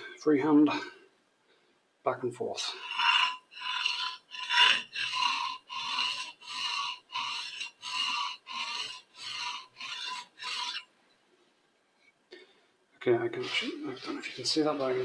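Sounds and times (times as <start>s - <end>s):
blade rubbing on sharpening stone: 2.7s - 10.8s.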